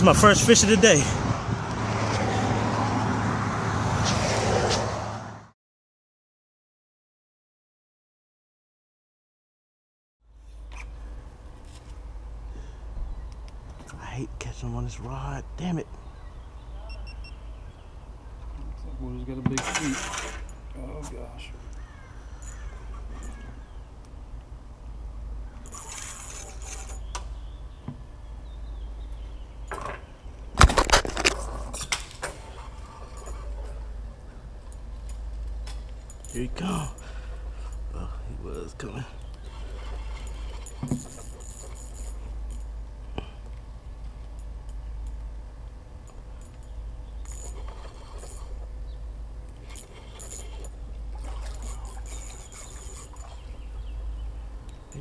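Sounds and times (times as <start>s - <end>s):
fishing reel cranking: 22.3s - 23.5s, 25.6s - 27.1s, 39.2s - 42.7s, 46.4s - 48.7s, 49.5s - 53.7s.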